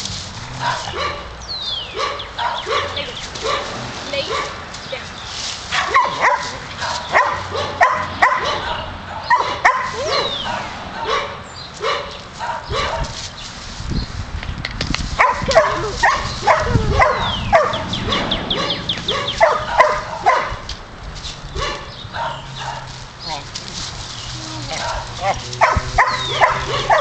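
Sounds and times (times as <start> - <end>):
dogs barking in play: 0.5 - 4.6, 5.7 - 13.2, 15.2 - 20.7, 21.5 - 23.6, 24.3 - 27.0
dog yips and yelps: 5.7 - 13.1, 15.2 - 20.6, 24.5 - 27.0.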